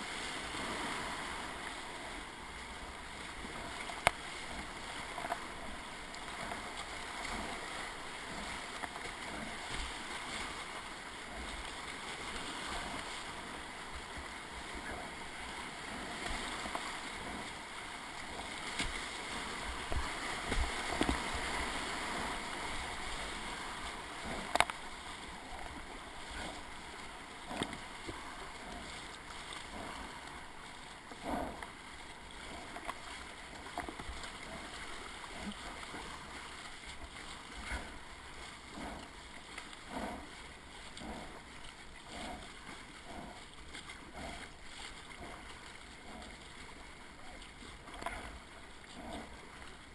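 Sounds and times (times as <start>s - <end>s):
whitewater rushing: 0.0s - 39.0s
paddle strokes splashing: 0.0s - 49.9s.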